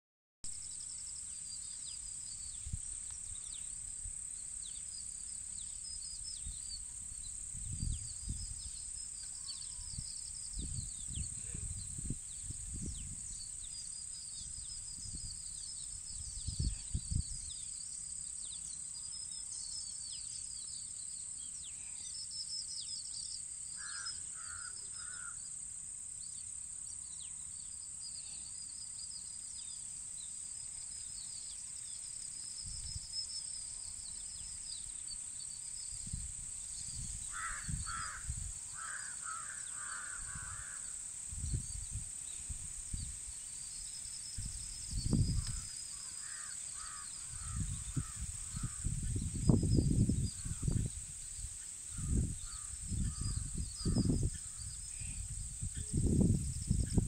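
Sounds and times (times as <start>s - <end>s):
steady high-pitched hiss: 0.5s - 57.0s
small birds chirping: 0.7s - 25.4s, 26.2s - 57.0s
wind buffeting microphone: 6.3s - 9.0s, 9.8s - 13.7s, 14.4s - 17.6s, 36.0s - 38.6s, 40.2s - 43.2s, 44.4s - 45.7s, 46.8s - 57.0s
crow cawing: 23.8s - 25.4s, 37.3s - 40.9s, 45.9s - 48.8s.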